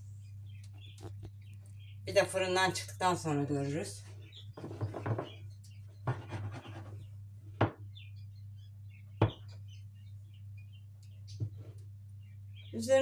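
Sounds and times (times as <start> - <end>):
food scratching in glass dish: 4.5 - 5.4, 6.0 - 7.1.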